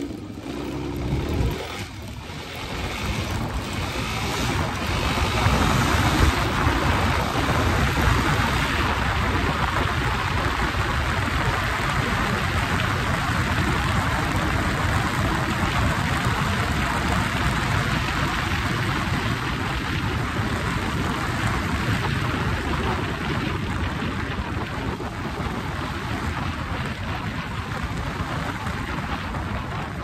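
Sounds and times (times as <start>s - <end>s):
road noise: 0.0s - 30.0s
wind rushing over microphone: 0.0s - 30.0s.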